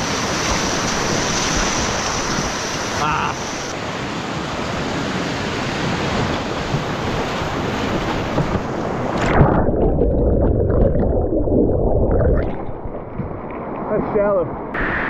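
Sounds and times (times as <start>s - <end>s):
whitewater rapids rushing: 0.0s - 3.8s
muffled underwater water sound: 6.2s - 15.0s.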